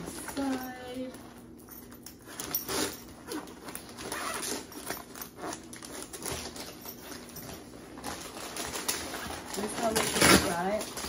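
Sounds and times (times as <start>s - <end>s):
fabric and mesh rustling: 0.0s - 11.0s
zipper pulled open: 2.5s - 5.9s.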